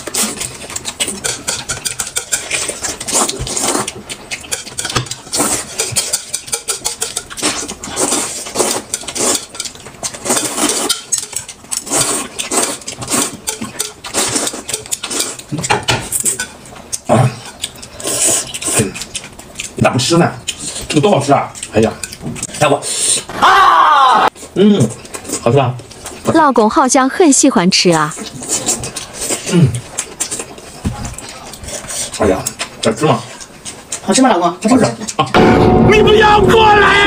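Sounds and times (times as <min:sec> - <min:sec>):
utensils scraping against dishes: 0:00.0 - 0:16.6.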